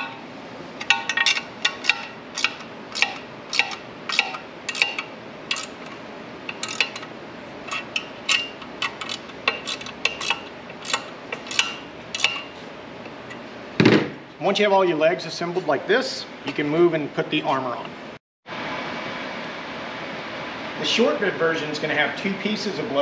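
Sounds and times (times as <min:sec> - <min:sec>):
ratchet wrench clicking: 0:01.1 - 0:05.8, 0:06.5 - 0:07.0.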